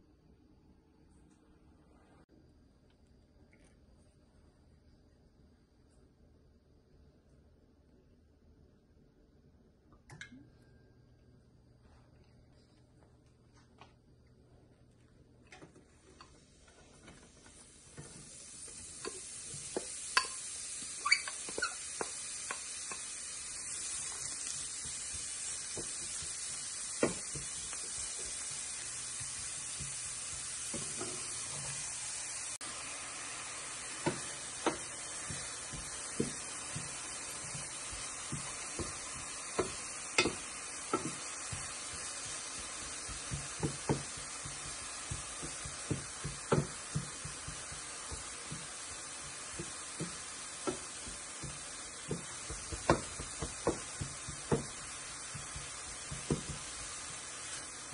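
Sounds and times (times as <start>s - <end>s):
leek sizzling in hot oil: 15.5s - 57.9s.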